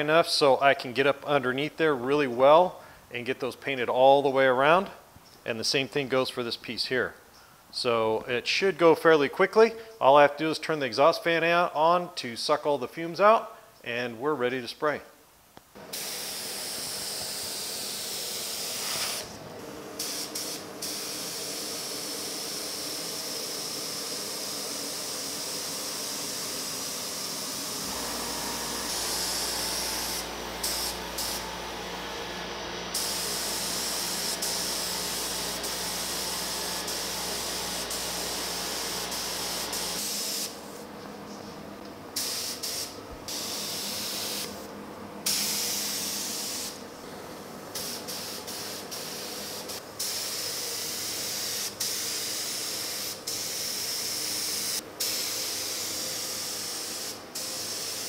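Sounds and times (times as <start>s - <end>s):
paint spray gun hissing: 15.8s - 40.9s, 42.2s - 46.9s, 47.7s - 58.0s.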